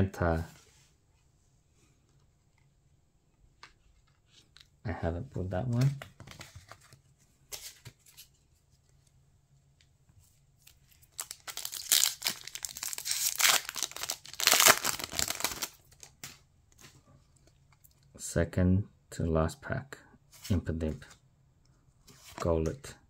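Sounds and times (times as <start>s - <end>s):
cards rustling: 3.6s - 9.1s, 10.3s - 18.0s
foil wrapper tearing and crinkling: 11.1s - 16.0s.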